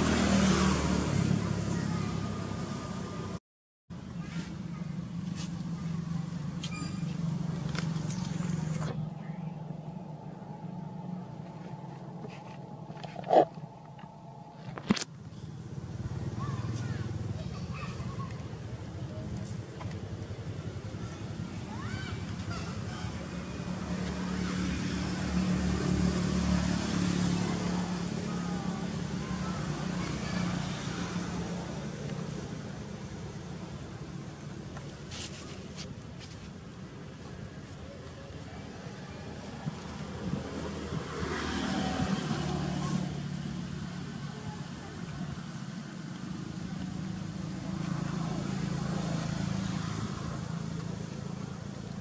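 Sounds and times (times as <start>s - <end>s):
open-air background noise: 0.0s - 52.0s
low engine hum: 4.0s - 52.0s
motor engine running: 5.0s - 22.4s.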